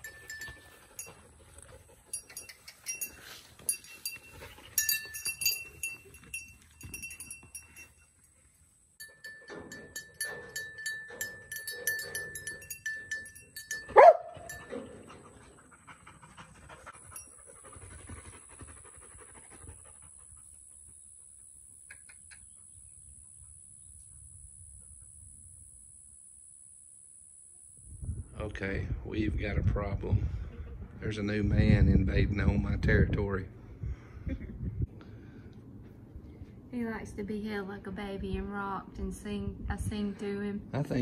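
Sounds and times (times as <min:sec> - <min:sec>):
small bells jingling: 0:00.0 - 0:15.0, 0:16.8 - 0:18.3.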